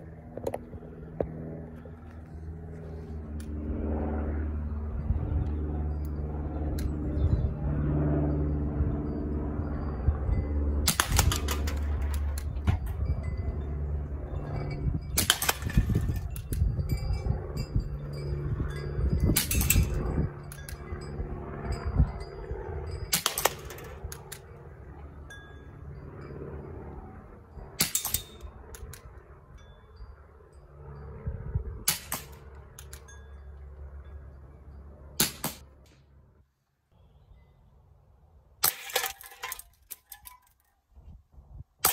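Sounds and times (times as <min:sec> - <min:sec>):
airsoft revolver shots: 0:10.8 - 0:11.8, 0:23.1 - 0:23.8, 0:35.2 - 0:35.6.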